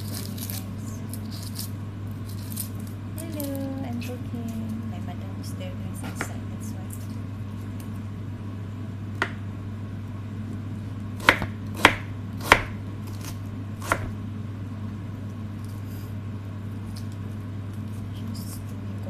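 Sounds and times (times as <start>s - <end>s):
steady low hum: 0.0s - 19.0s
knife chopping on wooden board: 9.2s - 9.4s, 11.2s - 14.2s.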